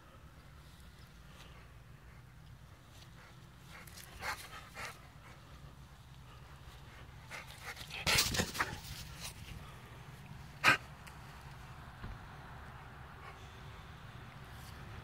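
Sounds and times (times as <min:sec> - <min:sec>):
dog panting: 0:01.5 - 0:05.6, 0:06.3 - 0:09.2.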